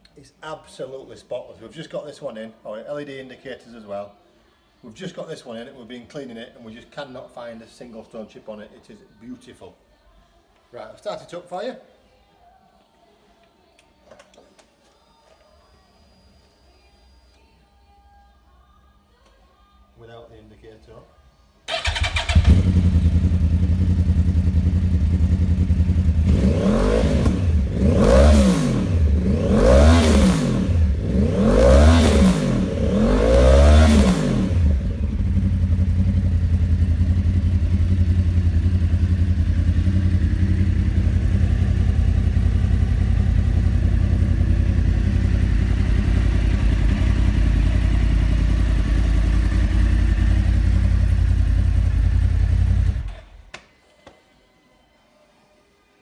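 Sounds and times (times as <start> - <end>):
motorcycle engine idling and revving: 21.7 - 53.2.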